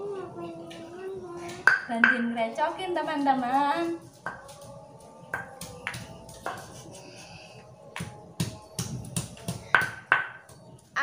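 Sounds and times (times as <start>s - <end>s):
stone pestle knocking in mortar: 5.3s - 6.7s, 8.0s - 10.6s.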